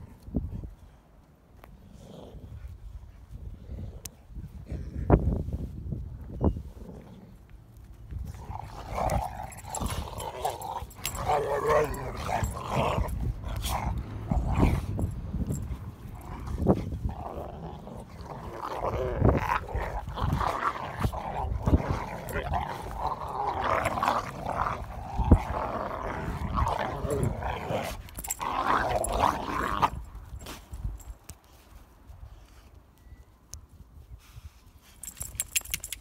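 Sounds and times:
dogs growling: 0:08.3 - 0:30.0.

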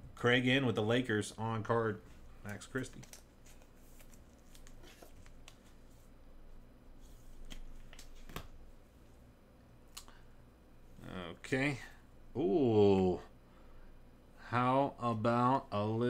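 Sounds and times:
trading cards rustling: 0:02.3 - 0:06.0.

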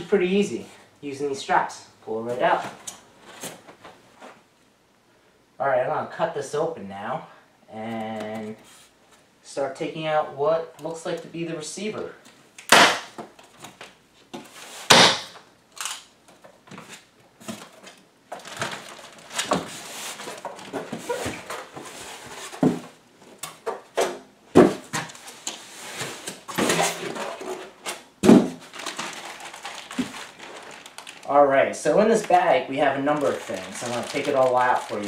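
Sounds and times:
plastic wrap crinkling: 0:17.5 - 0:22.4, 0:28.6 - 0:35.0
styrofoam blocks scraping: 0:18.4 - 0:22.7, 0:25.1 - 0:31.4, 0:32.0 - 0:35.0.

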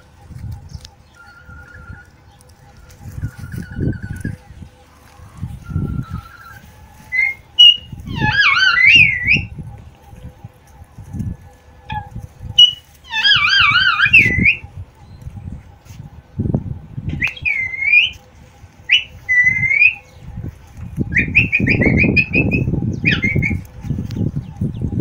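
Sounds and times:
parakeets whistling: 0:05.2 - 0:09.6, 0:11.9 - 0:15.2, 0:17.1 - 0:18.2, 0:18.9 - 0:20.3, 0:21.0 - 0:23.6.

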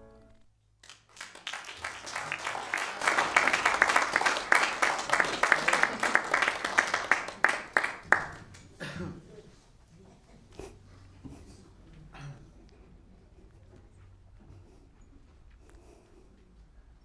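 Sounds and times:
congregation applauding: 0:00.8 - 0:08.9.

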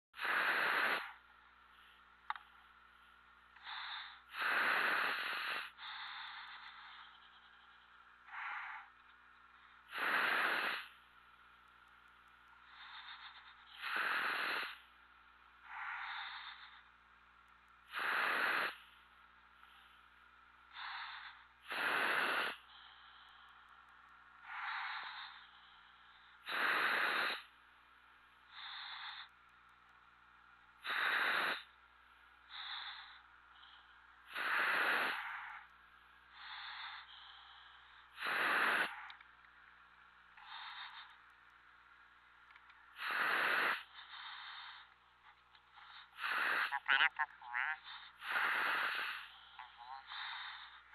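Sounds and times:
diver breathing through regulator: 0:00.2 - 0:01.2, 0:03.6 - 0:09.0, 0:09.9 - 0:11.0, 0:12.6 - 0:14.9, 0:15.6 - 0:16.9, 0:17.9 - 0:18.9, 0:20.7 - 0:23.7, 0:24.4 - 0:27.5, 0:30.8 - 0:31.8, 0:32.5 - 0:35.7, 0:36.3 - 0:39.2, 0:40.4 - 0:41.3, 0:42.6 - 0:45.0, 0:45.8 - 0:47.0, 0:47.7 - 0:50.9.

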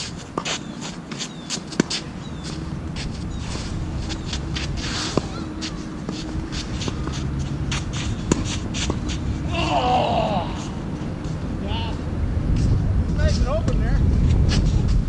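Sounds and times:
racket hitting ball: 0:00.0 - 0:02.2, 0:04.0 - 0:09.3
shoe scuffs on court: 0:00.0 - 0:09.2
low rumble: 0:06.6 - 0:15.0.

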